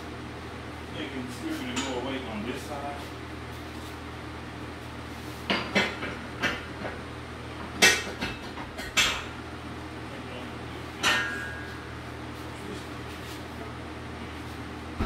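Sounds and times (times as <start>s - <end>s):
metallic clanks of gym equipment: 11.0s - 11.8s.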